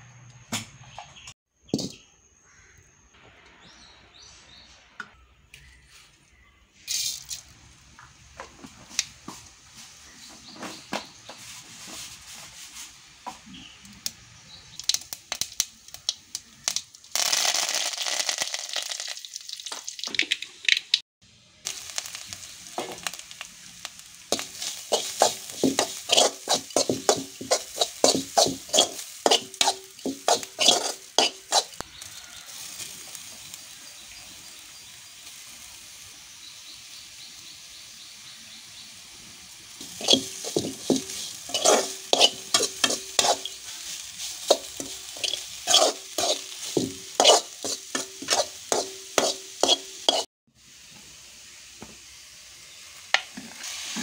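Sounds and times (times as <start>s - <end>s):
food sizzling in hot oil: 9.7s - 54.0s
spatula scraping metal pan: 24.3s - 31.8s, 39.8s - 50.3s.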